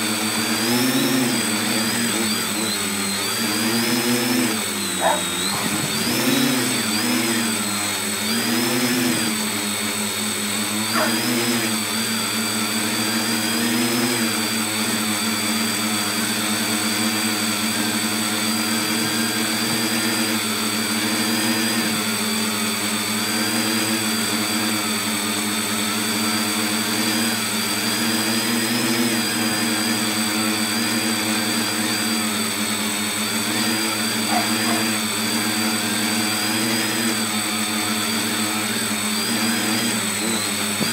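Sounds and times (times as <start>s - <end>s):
propellers buzzing hum: 0.0s - 12.0s, 33.5s - 35.9s.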